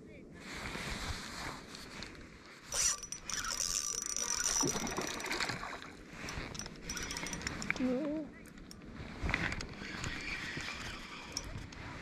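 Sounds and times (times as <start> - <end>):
wind rumbling on microphone: 0.0 - 12.0
fishing reel whirring and clicking: 2.7 - 5.6, 6.2 - 11.8.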